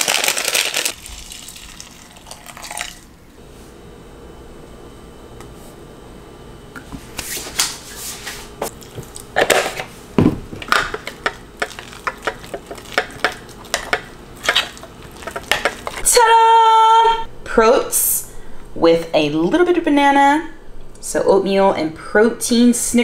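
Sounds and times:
spoon stirring in a glass bowl: 0:10.7 - 0:16.0.

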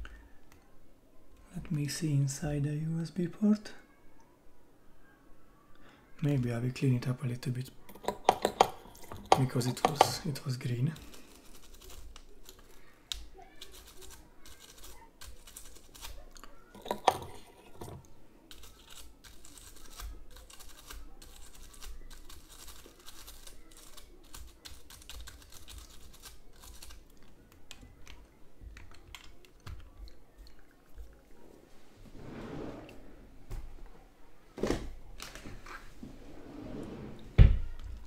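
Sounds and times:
toothbrush scrubbing a port: 0:07.9 - 0:27.2.

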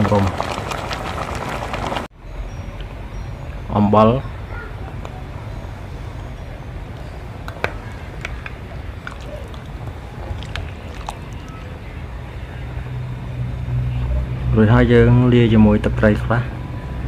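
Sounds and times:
metal ladle stirring in pot: 0:07.5 - 0:11.6.

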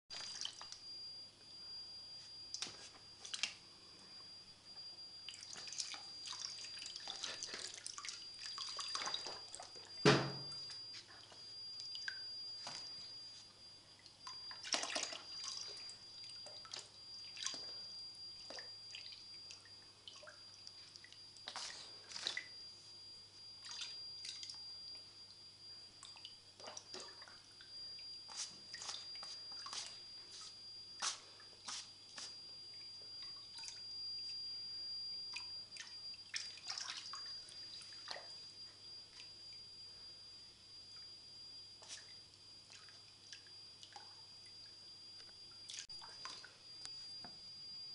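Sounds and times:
water dripping: 0:00.1 - 0:00.8, 0:05.2 - 0:10.0, 0:10.6 - 0:12.8, 0:13.9 - 0:17.8, 0:18.4 - 0:22.5, 0:23.6 - 0:24.6, 0:26.0 - 0:29.9, 0:32.7 - 0:34.3, 0:35.3 - 0:38.3, 0:42.7 - 0:46.9.

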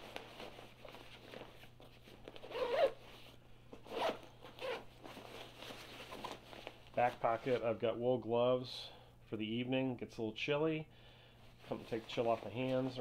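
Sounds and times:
backpack fabric rustling: 0:00.0 - 0:07.6
zipper being pulled shut: 0:02.4 - 0:03.0, 0:03.9 - 0:04.8.

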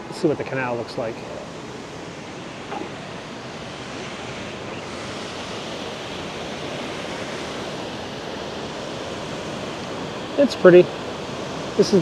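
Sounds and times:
water rushing over lock gate: 0:02.5 - 0:12.0.

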